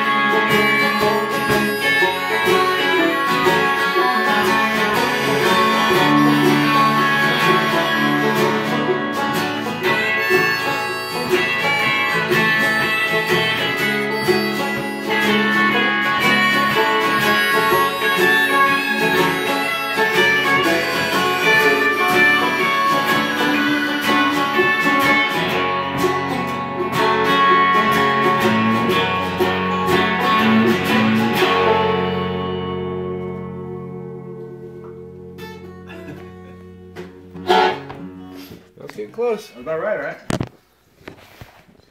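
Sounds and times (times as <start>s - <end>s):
banjo playing: 0.0s - 38.7s
acoustic guitar playing: 0.0s - 39.0s.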